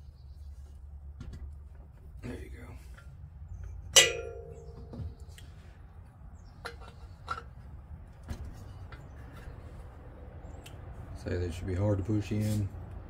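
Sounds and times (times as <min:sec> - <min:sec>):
metal clang ringing: 0:03.9 - 0:05.2.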